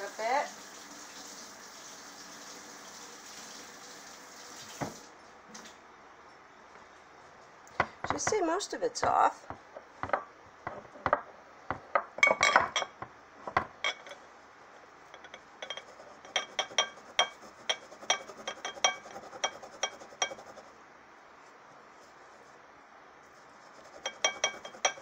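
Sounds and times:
glass jar clinking: 0:12.2 - 0:13.0.

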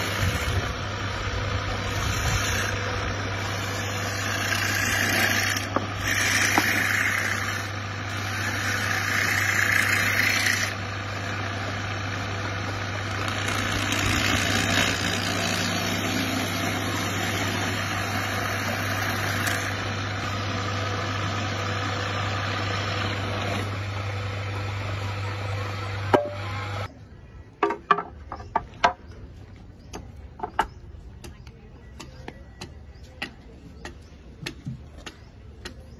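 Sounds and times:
lathe motor humming: 0:00.0 - 0:26.9
hand tool scraping wood: 0:01.7 - 0:23.9.

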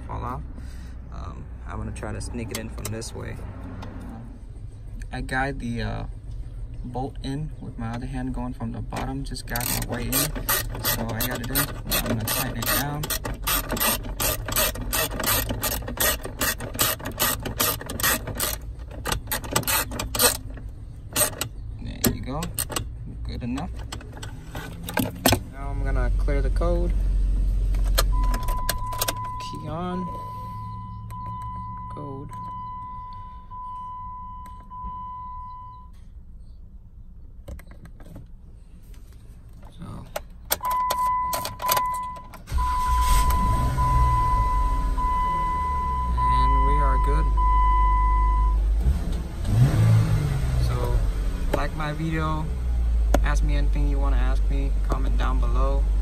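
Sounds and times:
ratchet clicking: 0:09.5 - 0:21.6
high electronic beep tone: 0:28.1 - 0:36.0, 0:40.6 - 0:48.6.

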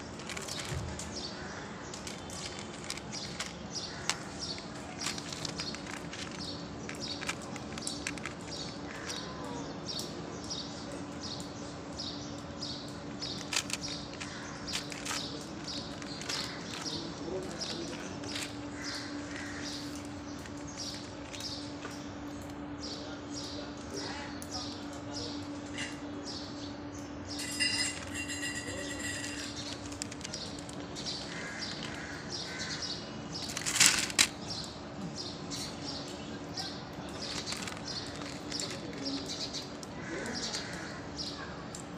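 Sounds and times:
cat crunching dry kibble: 0:00.0 - 0:09.4, 0:12.8 - 0:22.5, 0:27.4 - 0:34.7, 0:37.0 - 0:40.9.

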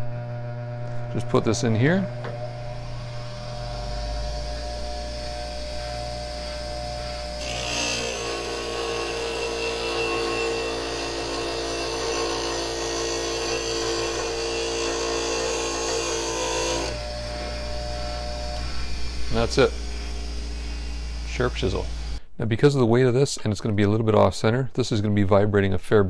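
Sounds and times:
bench grinder humming: 0:00.0 - 0:22.2
steel grinding on wheel: 0:03.7 - 0:17.1.

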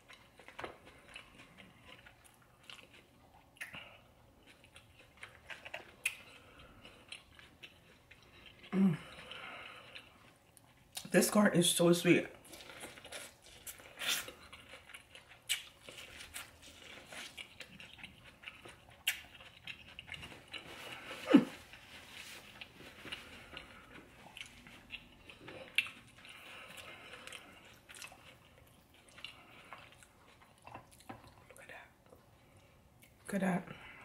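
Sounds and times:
person chewing food: 0:00.0 - 0:11.1, 0:12.3 - 0:34.0
wet mouth clicks and crunches: 0:15.4 - 0:16.6.

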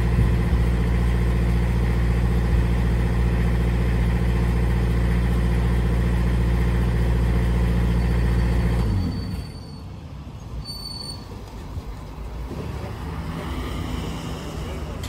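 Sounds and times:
diesel engine running: 0:00.0 - 0:10.5.

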